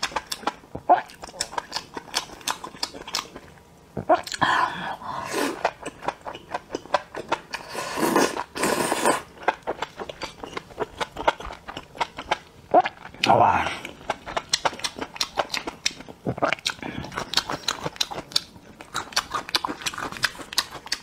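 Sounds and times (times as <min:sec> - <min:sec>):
person chewing wetly: 0:00.0 - 0:21.0
person slurping: 0:04.0 - 0:06.0, 0:07.5 - 0:10.6.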